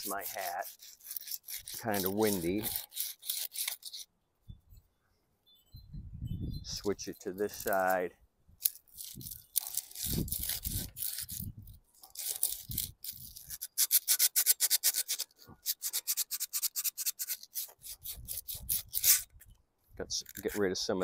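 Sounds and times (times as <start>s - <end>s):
sandpaper scratching on rusty metal: 0.0s - 4.1s, 6.8s - 19.3s.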